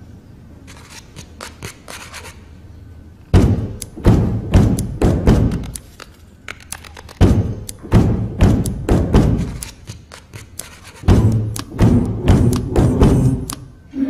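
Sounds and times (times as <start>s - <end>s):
hands pounding on wooden desks: 3.4s - 5.8s, 7.1s - 13.6s
faint tapping: 3.4s - 13.7s.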